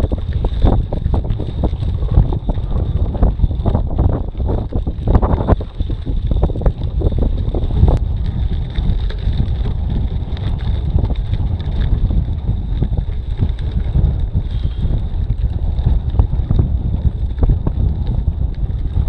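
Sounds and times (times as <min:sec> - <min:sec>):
bike rattling on gravel: 0:00.0 - 0:19.0
wind buffeting microphone: 0:00.0 - 0:19.0.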